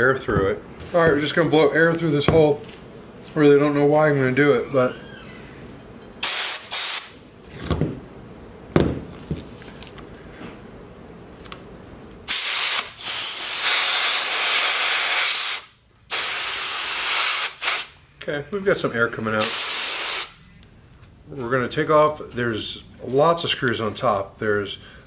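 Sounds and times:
compressed air hissing: 6.2 - 7.2, 12.3 - 18.0, 19.4 - 20.4.

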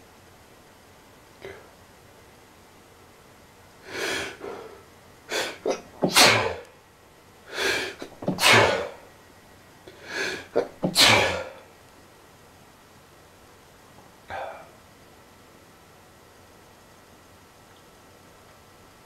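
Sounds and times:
man sneezing: 5.3 - 6.7, 7.6 - 9.0, 10.2 - 11.6
short breaths before sneezing: 9.9 - 11.5.

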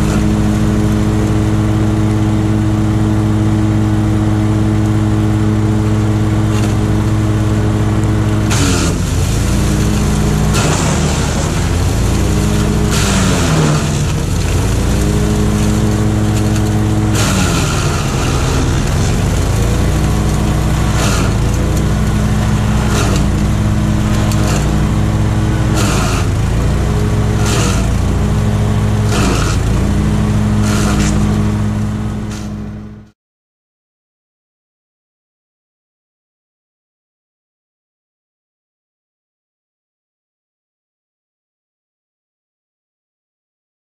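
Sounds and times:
wood chipper engine running: 0.0 - 33.1
wood cracking and chipping: 6.5 - 6.8, 8.0 - 32.6.

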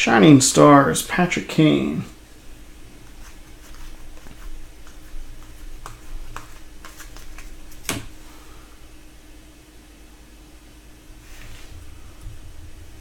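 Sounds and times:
trading cards flipped by hand: 3.0 - 8.1.

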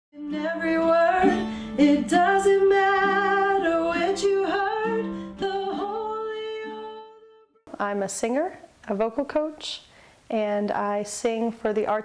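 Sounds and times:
acoustic guitar: 0.2 - 7.4
woman singing with vibrato: 0.2 - 7.6.

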